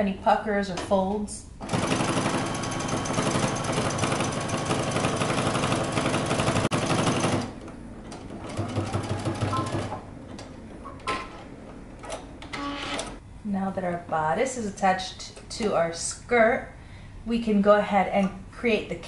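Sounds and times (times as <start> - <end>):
sewing machine running: 1.6 - 7.6, 8.2 - 10.0.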